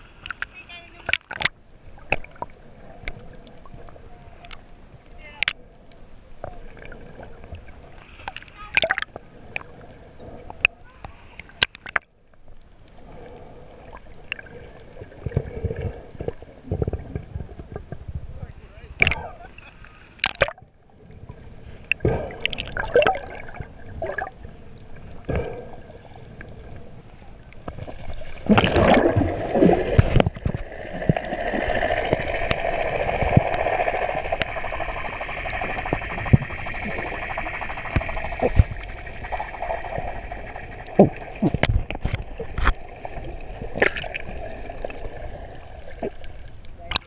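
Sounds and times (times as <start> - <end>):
muffled underwater water noise: 0.0 - 47.0
faint clicks: 0.2 - 18.1.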